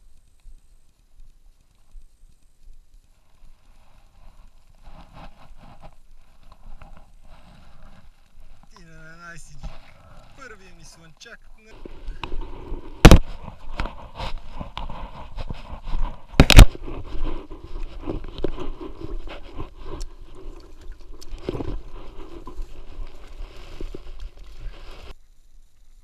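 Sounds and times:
footsteps through dry grass: 0:03.1 - 0:25.2
loud thumps: 0:12.2 - 0:14.9, 0:16.3 - 0:17.0.

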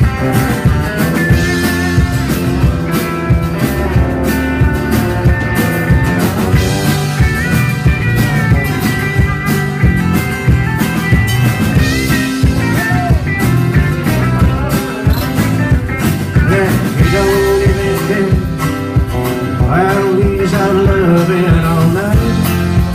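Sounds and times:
acoustic guitar: 0:00.0 - 0:22.9
drum kit beat: 0:00.0 - 0:22.9
electric guitar: 0:00.0 - 0:22.9
lead guitar bending notes: 0:00.0 - 0:22.9.

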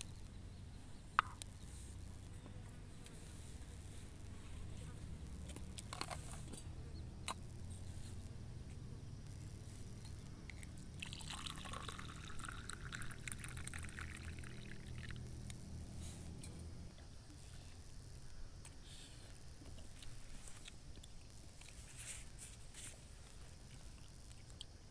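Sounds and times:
liquid pouring into container: 0:11.0 - 0:15.2.

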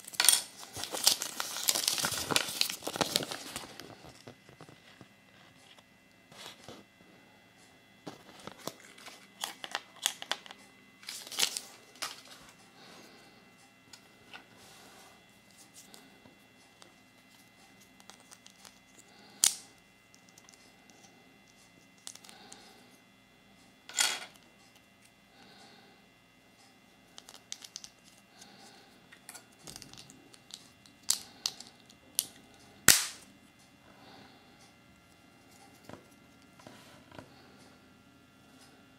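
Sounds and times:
paper leaflets crinkling: 0:00.6 - 0:05.1, 0:08.1 - 0:12.5.

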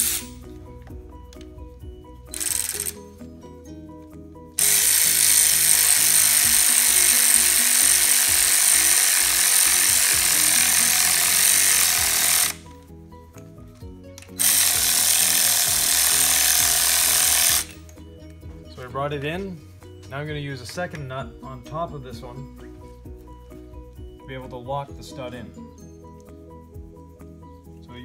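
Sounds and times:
air ratchet running: 0:00.0 - 0:00.4, 0:02.3 - 0:03.2, 0:04.6 - 0:12.7, 0:14.3 - 0:17.8.

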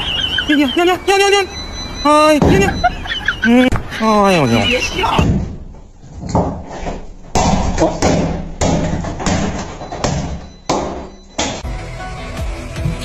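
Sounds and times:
voice: 0:00.5 - 0:05.3
sharp thumps: 0:02.3 - 0:03.0.

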